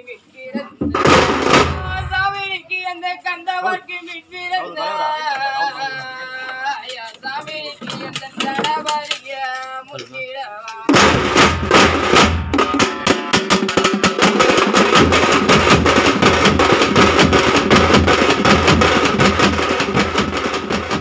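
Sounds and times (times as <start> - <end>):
drum ensemble playing: 0.7 - 2.6, 10.9 - 21.0
person singing: 1.7 - 11.0.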